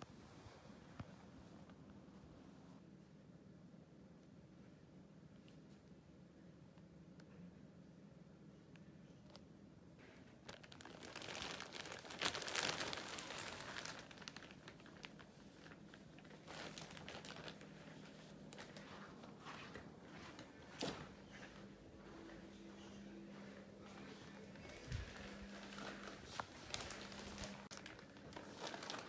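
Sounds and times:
carrier bag crinkling: 10.0s - 19.9s, 24.5s - 29.0s
bag sharp crackle: 10.4s - 17.7s, 24.7s - 29.0s.

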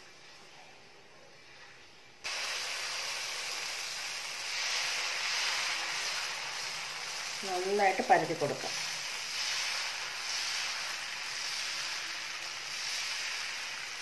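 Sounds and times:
batter sizzling on hot pan: 1.3s - 14.0s.

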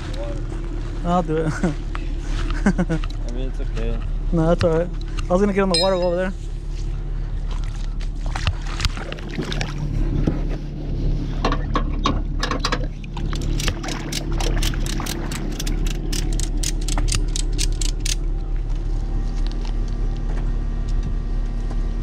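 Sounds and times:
low engine hum: 0.0s - 22.0s
ratchet strap clicking: 13.4s - 18.2s.

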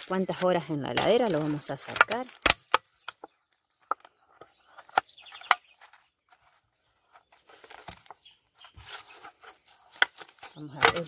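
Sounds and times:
birds chirping: 0.0s - 11.0s
rustle: 4.7s - 11.0s.

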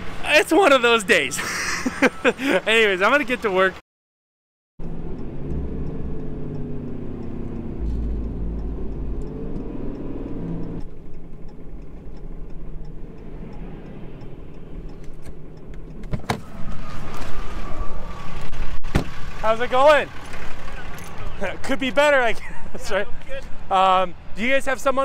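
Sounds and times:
engine and road noise: 0.0s - 3.8s, 4.8s - 25.0s
sharp clicks: 4.8s - 16.5s
turn signal ticking: 4.8s - 16.8s.

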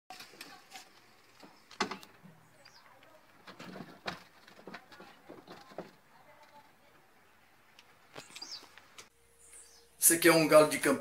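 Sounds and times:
bird chirping: 1.4s - 3.2s, 6.1s - 10.8s
bird cages knocking and rattling: 3.3s - 6.1s.

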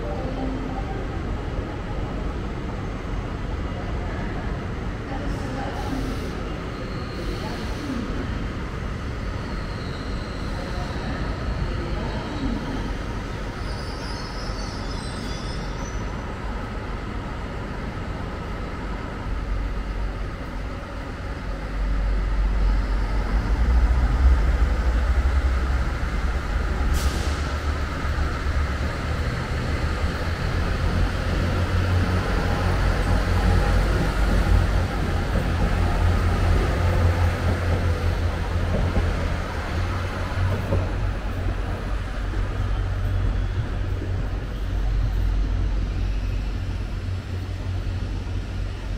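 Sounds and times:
train engine rumbling: 0.0s - 48.9s
hiss of air: 26.9s - 27.7s.

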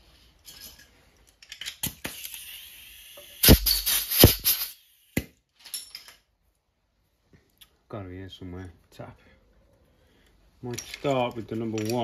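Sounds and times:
click and rattle: 10.7s - 12.0s
metal hand tools clinking: 10.7s - 12.0s.

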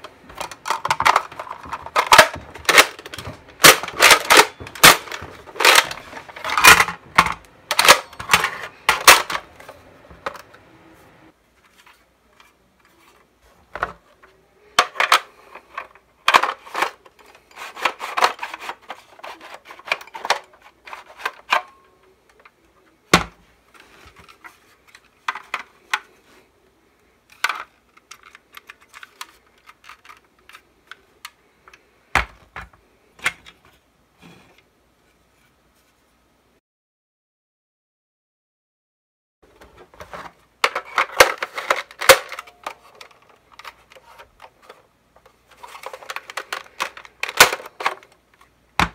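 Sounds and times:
plastic parts clicking and rubbing: 0.0s - 10.7s, 11.5s - 34.7s, 39.5s - 48.9s.

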